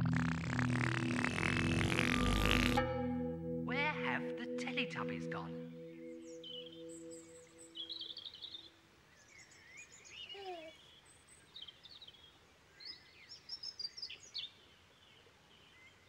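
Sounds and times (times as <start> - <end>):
low gliding bird call: 0.0 - 2.9
faint outdoor hiss: 0.0 - 16.0
birds chirping and singing: 5.4 - 8.6.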